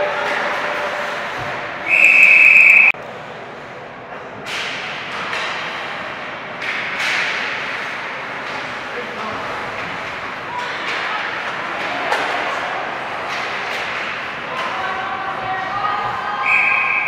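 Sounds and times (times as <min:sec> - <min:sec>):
rink background noise: 0:00.0 - 0:17.0
referee's whistle: 0:01.8 - 0:02.9, 0:16.4 - 0:17.0
hockey sticks cracking on puck: 0:04.4 - 0:16.7.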